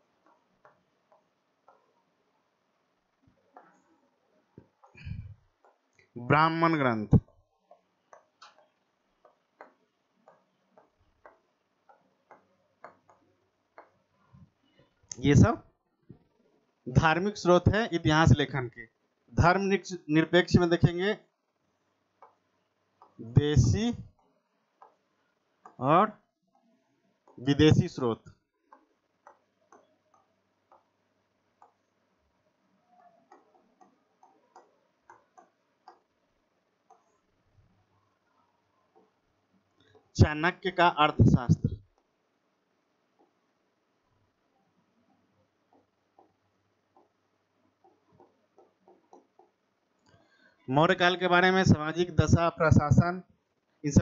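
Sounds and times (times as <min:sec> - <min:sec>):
pen tapping on glass board: 0:00.2 - 0:02.0, 0:07.2 - 0:14.1, 0:22.2 - 0:23.2, 0:24.1 - 0:25.8, 0:28.7 - 0:31.0, 0:33.2 - 0:36.2, 0:45.7 - 0:49.6.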